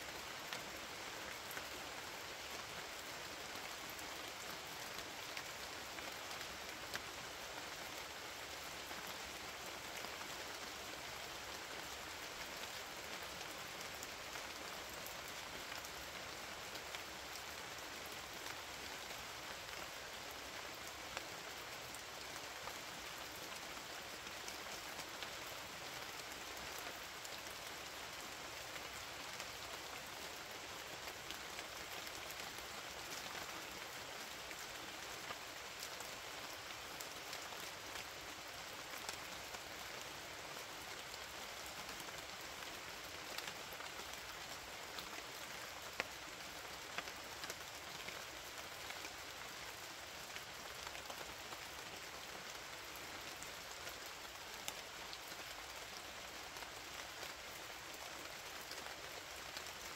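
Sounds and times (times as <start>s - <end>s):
steady rain falling: 0.0s - 59.9s.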